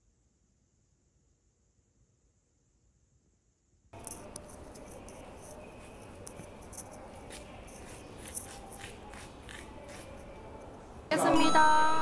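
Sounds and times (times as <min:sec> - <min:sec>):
background hum: 0:00.0 - 0:12.0
footsteps on tiled pavement: 0:04.0 - 0:10.9.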